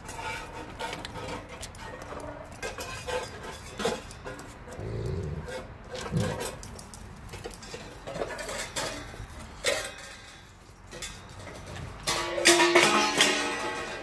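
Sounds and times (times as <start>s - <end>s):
dog growling: 4.7s - 6.6s.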